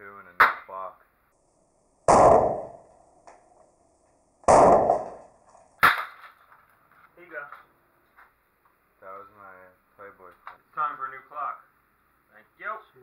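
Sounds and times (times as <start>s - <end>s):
sharp crack: 0.4s - 0.8s, 2.0s - 3.7s, 4.4s - 6.6s.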